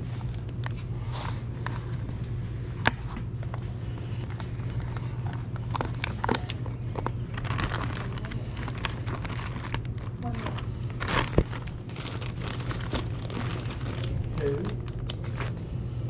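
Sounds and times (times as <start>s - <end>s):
steady low hum: 0.0s - 16.0s
plastic bags crinkling: 4.2s - 15.6s.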